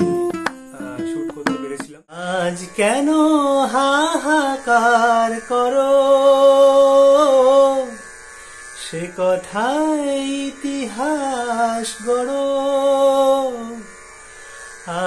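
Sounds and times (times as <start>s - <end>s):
plucked string notes: 0.0s - 2.0s
man singing long notes: 0.8s - 8.0s, 8.8s - 14.0s.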